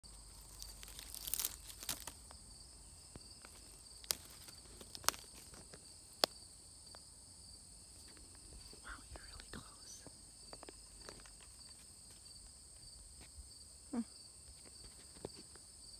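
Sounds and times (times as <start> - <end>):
high insect buzz: 0.1 - 15.9
bird beak crunching wood: 0.2 - 2.4, 3.2 - 6.4
branch snapping: 0.3 - 2.4, 3.4 - 6.4.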